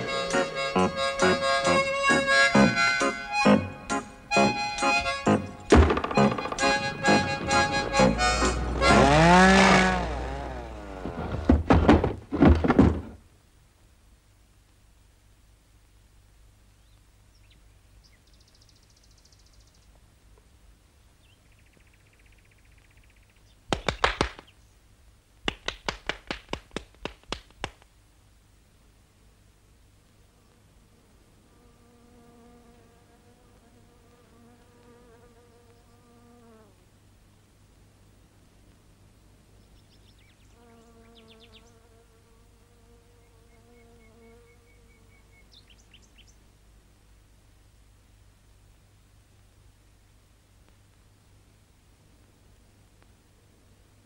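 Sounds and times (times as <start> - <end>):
faint high buzzes: 0.0 - 11.7, 27.9 - 54.0
cartoon rapid knocks: 5.3 - 9.2, 11.0 - 13.2
short trill: 6.1 - 10.2.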